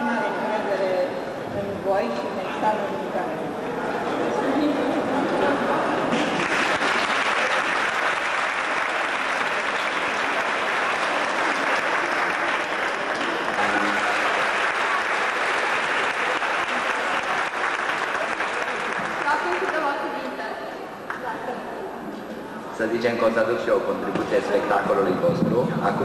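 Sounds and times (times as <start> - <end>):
audience applauding: 6.1 - 20.3.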